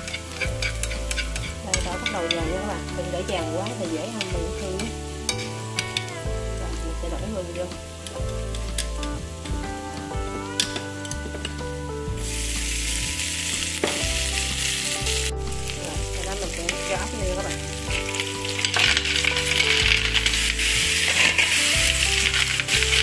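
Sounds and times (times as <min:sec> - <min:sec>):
garlic sizzling in oil: 0:00.0 - 0:23.0
snail shells clicking in pan: 0:16.6 - 0:23.0.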